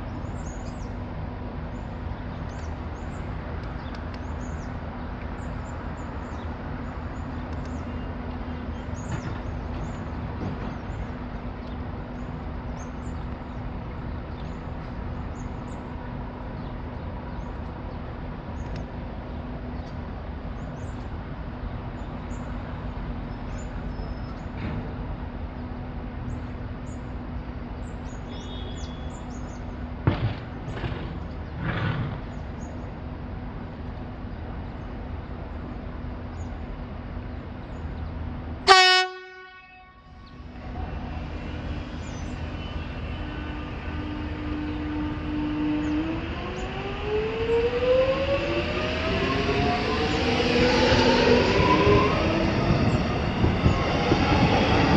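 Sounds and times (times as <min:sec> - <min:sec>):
train equipment humming: 0:00.0 - 0:54.9
small birds chirping: 0:27.8 - 0:29.8.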